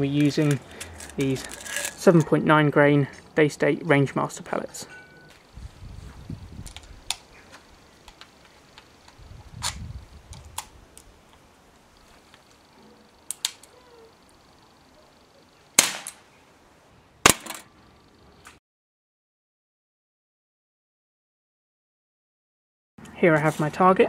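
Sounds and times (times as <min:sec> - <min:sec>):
air revolver shots: 0:15.8 - 0:16.2, 0:17.2 - 0:17.7.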